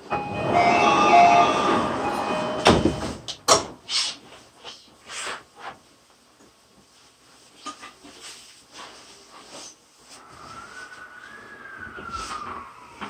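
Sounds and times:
electronic door chime: 0.0s - 3.2s
train doors thudding shut: 0.1s - 3.8s.

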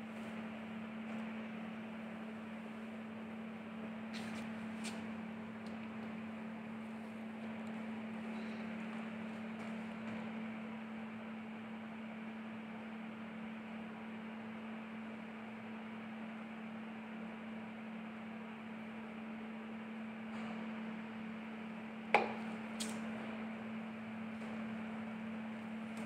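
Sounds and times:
steady hum: 21.0s - 26.0s.

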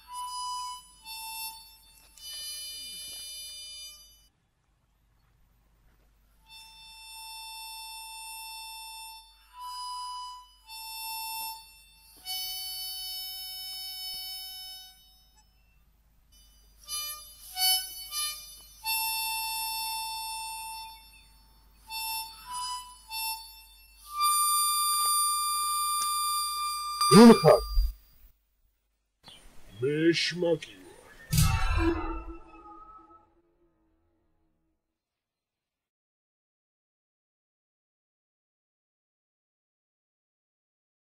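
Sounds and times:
harmonica playing slow tune: 0.0s - 4.3s, 6.3s - 27.9s.

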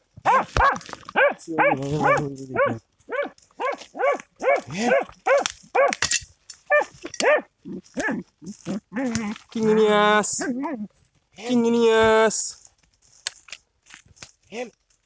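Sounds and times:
dog barking: 0.2s - 6.0s, 6.7s - 8.2s.

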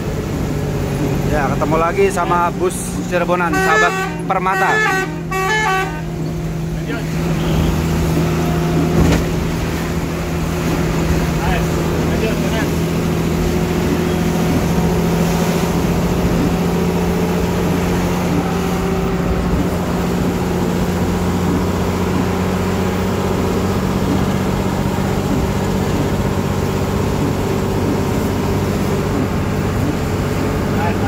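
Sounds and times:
bus engine drone: 0.0s - 31.0s
rain and tyre hiss: 0.0s - 31.0s.

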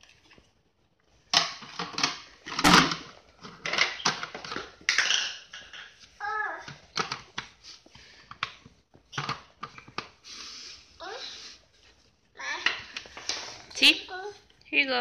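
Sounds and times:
plastic toy dishes clattering: 1.3s - 6.0s, 6.7s - 7.5s, 8.3s - 10.2s.

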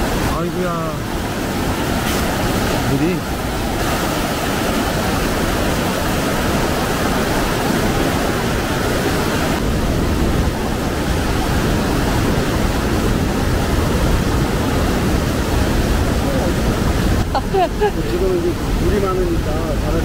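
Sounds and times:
stream water roaring: 0.0s - 20.0s.

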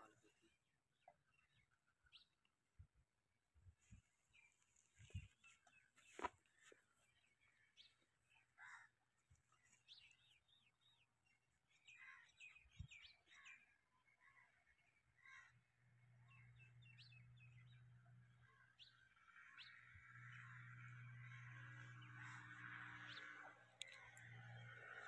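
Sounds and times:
birds chirping: 18.5s - 25.0s.

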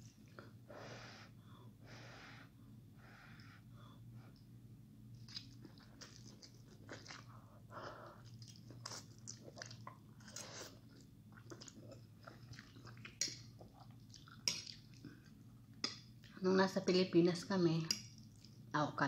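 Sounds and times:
person slurping and chewing noodles: 5.2s - 15.3s.

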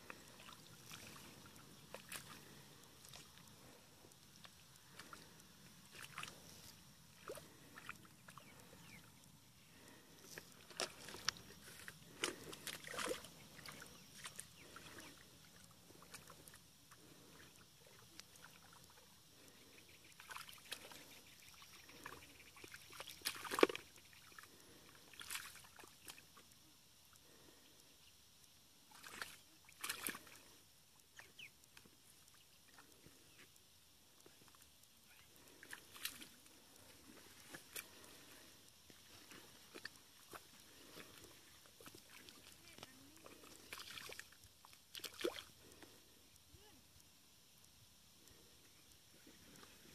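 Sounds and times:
squelching in mud: 0.0s - 26.5s, 28.9s - 33.6s, 34.2s - 46.2s
splashes in muddy water: 5.9s - 6.4s, 10.6s - 15.3s, 20.2s - 21.2s, 21.9s - 24.5s, 25.1s - 26.2s, 28.9s - 30.4s, 39.3s - 45.5s.

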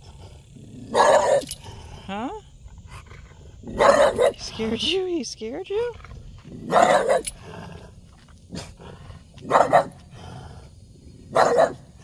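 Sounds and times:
dog barking: 0.9s - 1.5s, 3.8s - 4.4s, 6.7s - 7.3s, 9.5s - 10.0s, 11.3s - 11.8s.

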